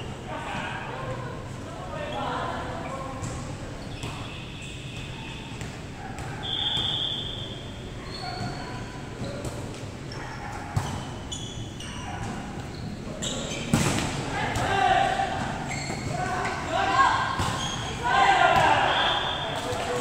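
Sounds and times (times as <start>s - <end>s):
sneakers squeaking on wooden court: 3.1s - 14.2s, 15.5s - 16.6s, 17.3s - 18.0s.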